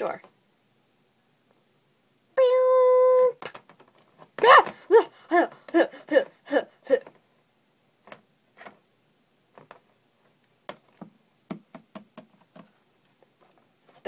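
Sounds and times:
plastic toys tapping on laptop: 3.4s - 4.8s, 8.0s - 8.8s, 9.5s - 9.9s, 10.6s - 12.8s.

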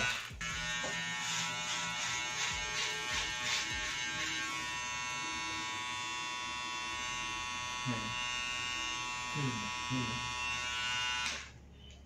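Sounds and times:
shaver rasping on skin: 0.0s - 5.7s
electric shaver buzzing: 0.0s - 11.6s.

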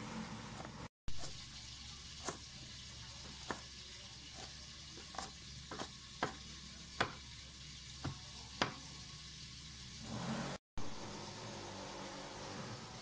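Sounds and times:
knife chopping on cutting board: 3.3s - 3.7s, 4.4s - 6.4s, 7.0s - 7.2s.

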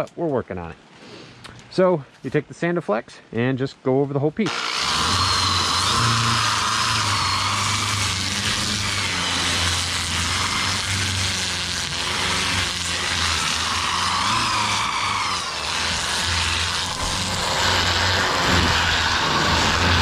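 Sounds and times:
abrasive hissing against wood: 4.5s - 20.0s
drill running: 4.5s - 20.0s.

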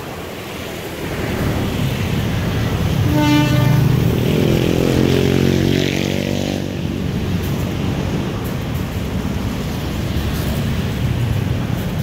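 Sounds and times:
diesel locomotive engine humming: 0.0s - 12.0s
locomotive horn toot: 3.0s - 4.2s.

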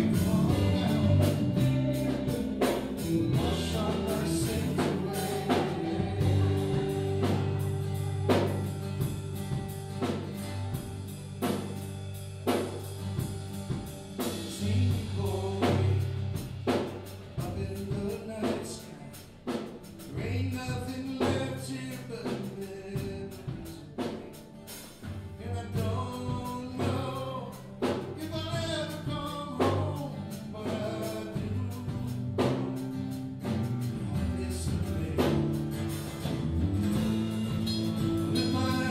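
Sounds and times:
voices singing: 0.0s - 10.3s, 14.2s - 16.4s, 37.0s - 38.9s
sustained bass notes: 0.0s - 16.7s, 33.2s - 38.9s
drum kit hits: 0.0s - 18.7s, 30.7s - 38.9s
electric and acoustic guitars: 0.0s - 38.9s.

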